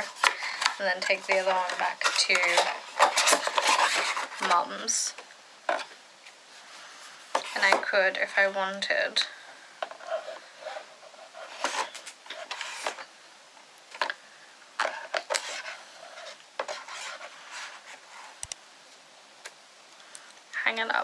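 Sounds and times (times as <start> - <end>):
packaging rustling: 0.0 - 4.9, 9.8 - 13.1.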